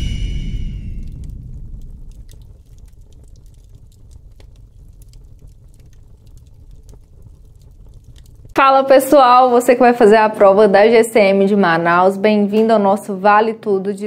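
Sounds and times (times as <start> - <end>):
low rumble: 0.0 - 10.1
faint crackling clicks: 1.0 - 8.6.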